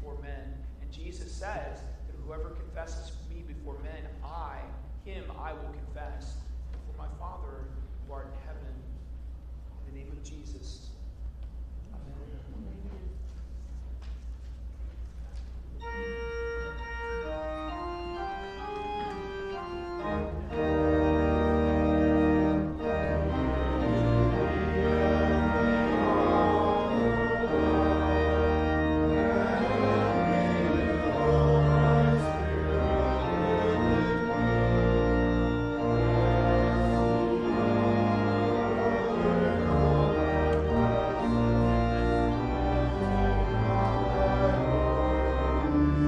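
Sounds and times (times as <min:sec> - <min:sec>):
church organ playing: 0:15.8 - 0:46.0.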